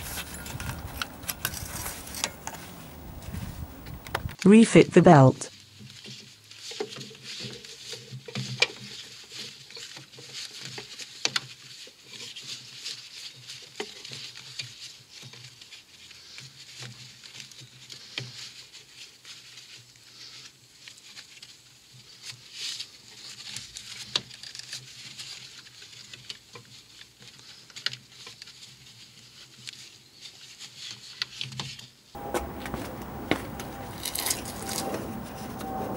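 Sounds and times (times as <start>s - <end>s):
belt and glove rubbing engine parts: 0.0s - 4.4s, 32.2s - 35.9s.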